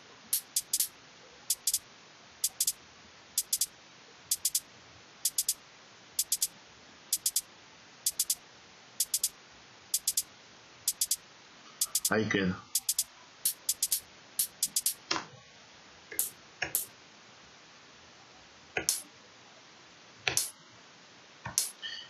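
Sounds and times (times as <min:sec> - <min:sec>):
steady hiss: 0:00.0 - 0:15.0, 0:15.6 - 0:22.0
programmed hi-hat pattern: 0:00.3 - 0:00.9, 0:01.5 - 0:01.8, 0:02.4 - 0:02.8, 0:03.4 - 0:03.7, 0:04.3 - 0:05.6, 0:06.2 - 0:06.5, 0:07.1 - 0:08.4, 0:09.0 - 0:10.3, 0:10.9 - 0:11.2, 0:11.8 - 0:15.0, 0:16.2 - 0:16.9, 0:18.8 - 0:19.1, 0:20.4 - 0:20.6, 0:21.6 - 0:21.8.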